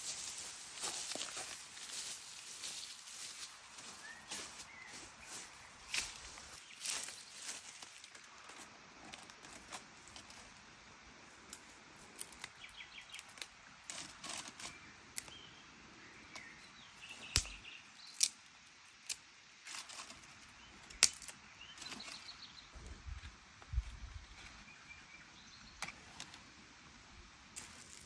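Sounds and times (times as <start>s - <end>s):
dry twigs snapping: 17.2s - 20.1s, 20.9s - 22.2s.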